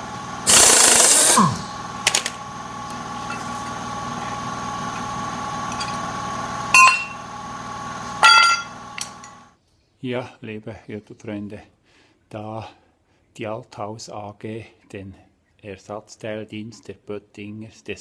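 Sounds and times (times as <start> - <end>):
steady background hum: 0.0 - 9.6
pneumatic wrench burst: 0.4 - 2.2.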